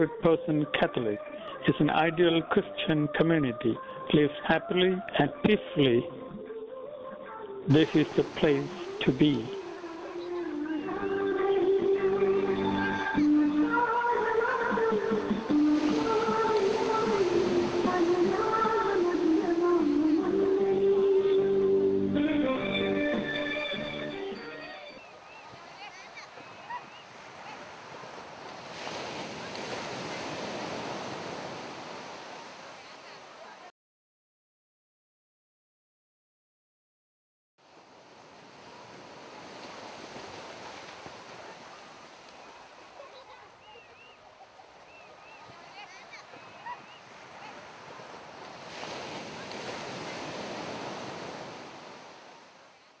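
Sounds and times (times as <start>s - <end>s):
sea surf rushing: 7.7s - 33.7s, 37.6s - 52.9s.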